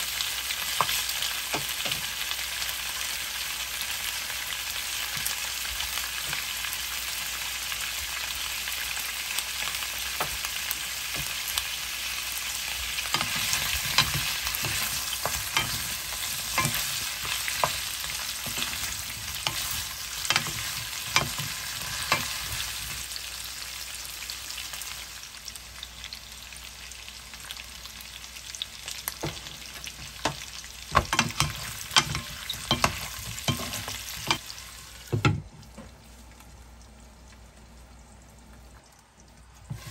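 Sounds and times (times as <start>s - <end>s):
food sizzling in frying pan: 0.0s - 38.9s, 39.5s - 39.9s
spatula scraping and knocking pan: 13.0s - 23.0s, 29.1s - 34.4s, 39.7s - 39.9s.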